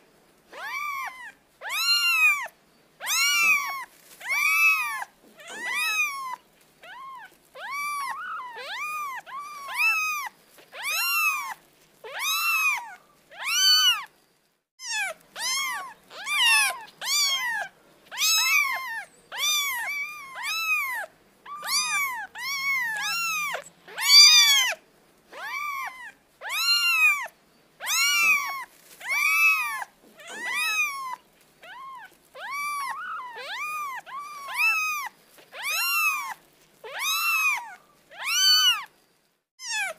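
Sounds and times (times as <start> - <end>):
kitten mewing: 0.5 - 14.1, 14.8 - 38.9.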